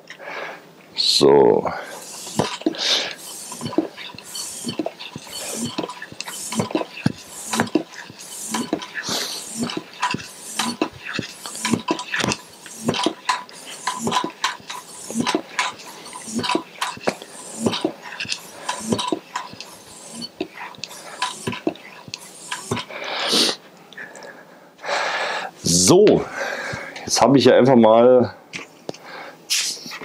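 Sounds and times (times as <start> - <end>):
floor pump hissing air: 0.2 - 23.7, 29.0 - 30.0
pump light clack: 2.1 - 19.8.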